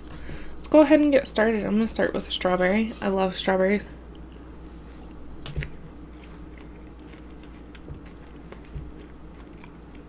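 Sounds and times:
person chewing: 4.0 - 10.0.

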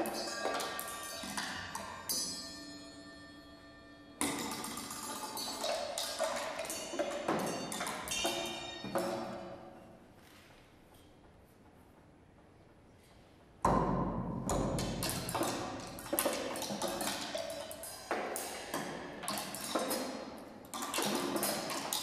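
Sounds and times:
ringing cymbals: 0.0 - 9.6.

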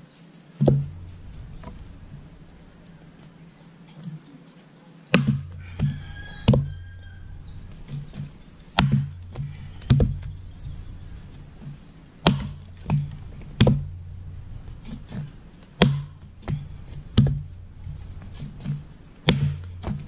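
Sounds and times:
axe chopping wooden log: 0.6 - 2.4, 5.1 - 10.5, 11.4 - 14.1, 14.7 - 20.0.

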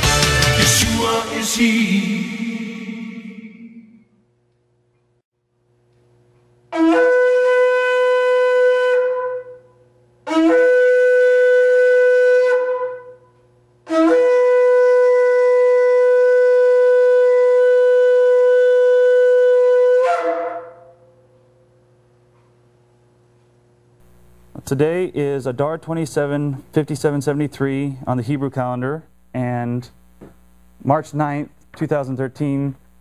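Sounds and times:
shofar blasts: 6.7 - 21.4.

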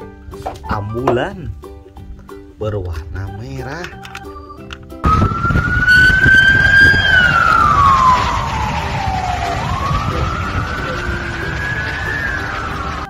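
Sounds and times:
ambulance siren wailing: 5.0 - 13.0
low rumbling noise: 5.0 - 13.0.

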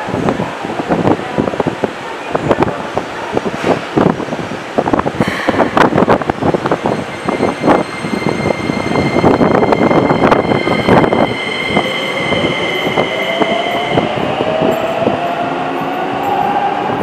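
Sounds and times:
train running noise: 0.0 - 17.0.

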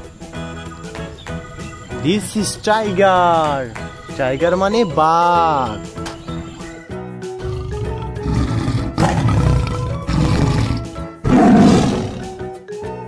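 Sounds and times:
background music: 0.0 - 13.0
tiger roaring: 7.4 - 12.4.

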